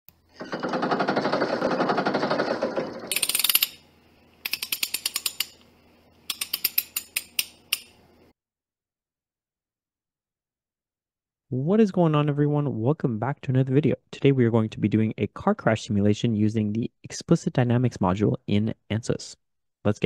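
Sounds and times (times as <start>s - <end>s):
mechanical clicks: 4.4s - 5.7s.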